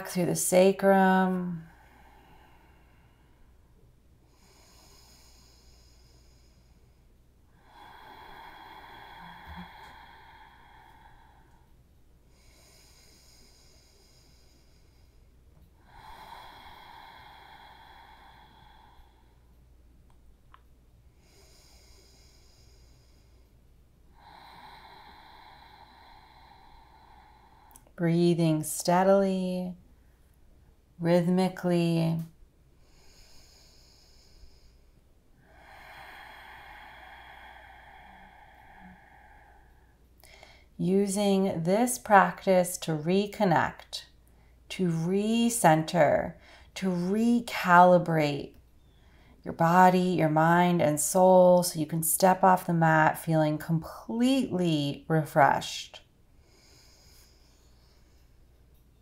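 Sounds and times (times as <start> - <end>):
person breathing slowly: 0.9 - 19.8, 21.1 - 28.0, 32.7 - 40.8, 46.3 - 48.0, 48.8 - 49.4, 55.7 - 59.0.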